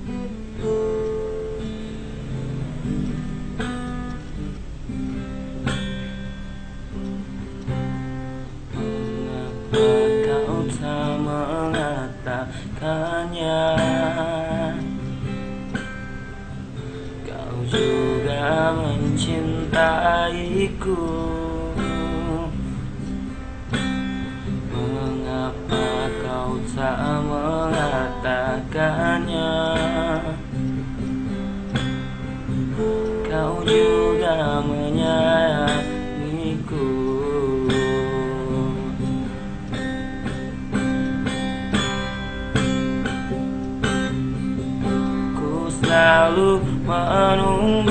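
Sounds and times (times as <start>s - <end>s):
strummed acoustic guitar: 0.0s - 47.9s
man singing a slow ballad: 8.8s - 15.0s, 17.2s - 22.7s, 24.7s - 30.5s, 33.2s - 39.2s, 45.2s - 47.9s.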